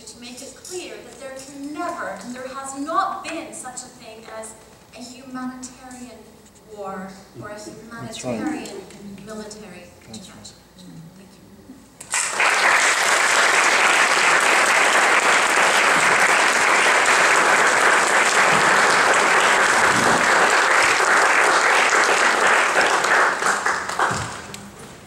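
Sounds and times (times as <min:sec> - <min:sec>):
audience applauding: 0:12.1 - 0:24.6.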